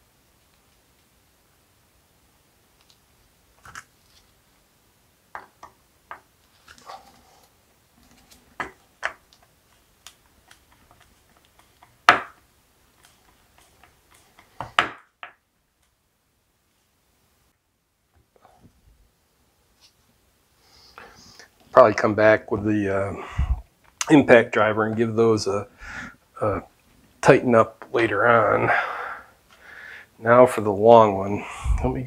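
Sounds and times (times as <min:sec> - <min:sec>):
wooden pieces clicking and knocking: 0:05.3 - 0:07.2, 0:08.0 - 0:15.4.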